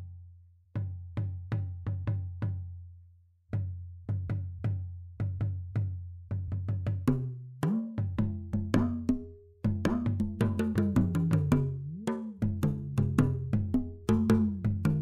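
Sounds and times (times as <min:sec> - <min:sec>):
percussion-led instrumental music: 0:03.5 - 0:15.0.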